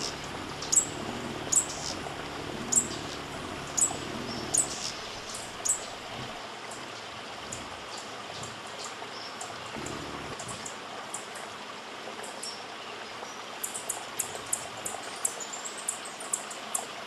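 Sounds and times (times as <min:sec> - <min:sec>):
bird chip calls: 0:00.0 - 0:06.0
background hiss: 0:00.0 - 0:11.5.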